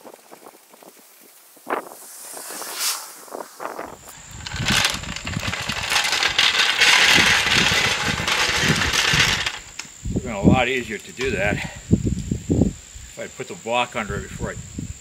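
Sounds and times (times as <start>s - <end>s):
floor jack rattling on asphalt: 4.1s - 9.8s.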